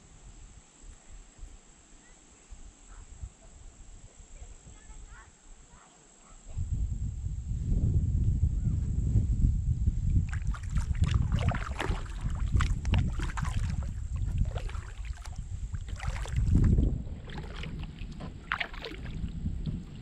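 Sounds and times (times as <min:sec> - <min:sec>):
wind rumble on microphone: 0:00.0 - 0:01.8, 0:02.5 - 0:05.4, 0:06.4 - 0:20.0
paddle water splashing: 0:10.2 - 0:20.0.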